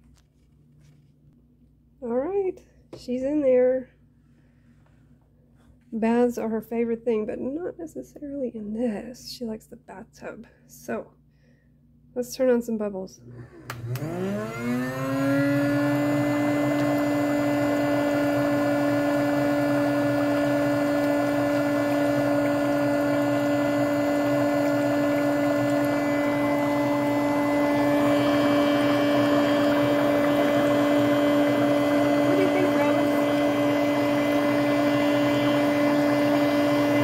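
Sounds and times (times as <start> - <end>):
foot spa motor humming: 13.3 - 37.0.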